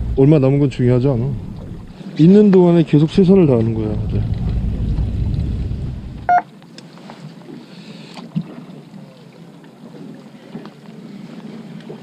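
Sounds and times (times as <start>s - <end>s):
boat engine rumbling: 0.0s - 6.5s
faint water: 0.0s - 12.0s
wind: 0.0s - 12.0s
short beep: 6.3s - 6.5s.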